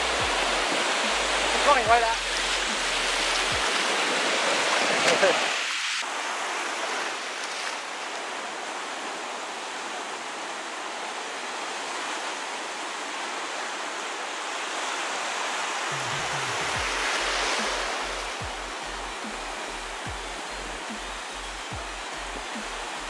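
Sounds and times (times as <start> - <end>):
music with pulsing bass beat: 0.0 - 3.6, 16.0 - 23.0
ocean surf breaking: 0.0 - 21.4.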